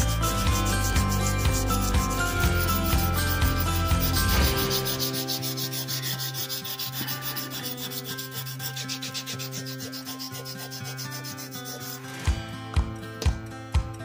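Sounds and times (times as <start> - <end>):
steady drum beat: 0.0 - 5.6
held chords: 0.0 - 5.9
shaker ticking: 0.0 - 12.1.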